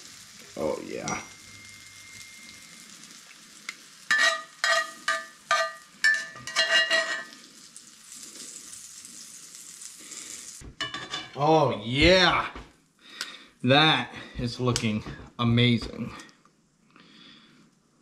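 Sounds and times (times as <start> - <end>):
food sizzling in frying pan: 0.0 - 13.0
metal utensil scraping pan: 4.1 - 7.4, 10.8 - 11.4.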